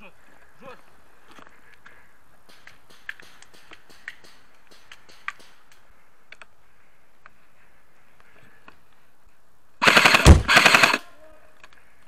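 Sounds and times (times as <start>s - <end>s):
airsoft rifle firing full auto: 2.5s - 5.7s, 9.8s - 11.0s.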